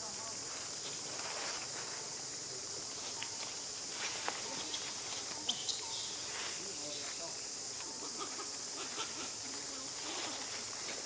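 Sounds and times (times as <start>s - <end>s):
jungle insects chorus: 0.0s - 11.0s
monkeys rustling in branches: 0.4s - 11.0s.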